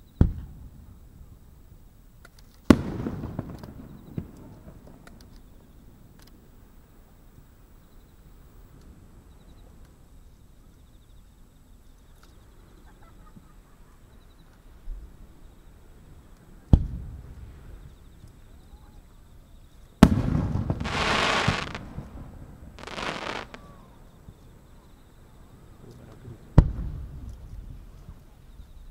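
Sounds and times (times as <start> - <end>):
firework bursting bang: 20.0 - 23.9
hissing crackle: 20.0 - 24.2.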